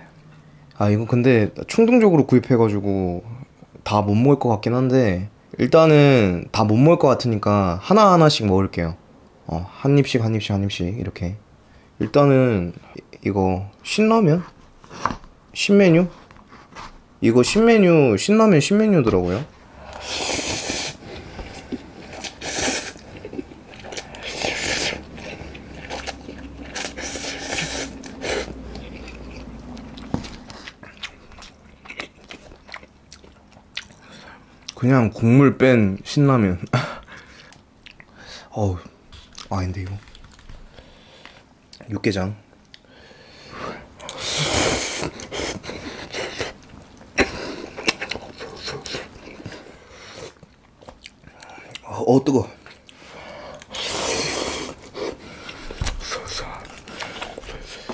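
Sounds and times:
person slurping noodles: 19.8s - 28.6s, 44.1s - 46.6s, 53.7s - 55.4s
wet chewing and smacking: 21.4s - 34.8s, 37.0s - 38.2s, 39.2s - 41.9s, 45.0s - 49.6s, 50.3s - 51.9s.

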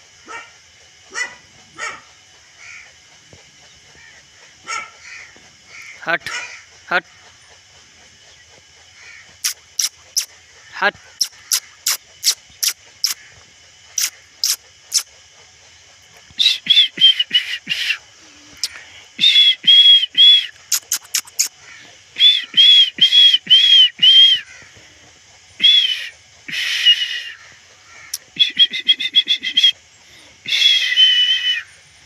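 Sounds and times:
birds chirping: 16.4s - 24.8s
birds whistling short notes: 22.2s - 24.5s.

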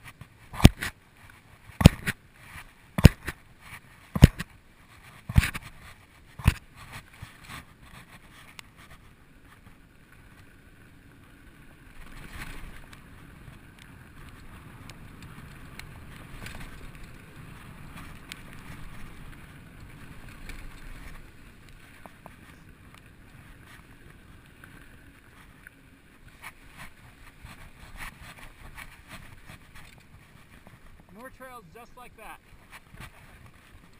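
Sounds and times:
bike rattles and clicks: 0.0s - 31.4s, 32.4s - 33.9s.

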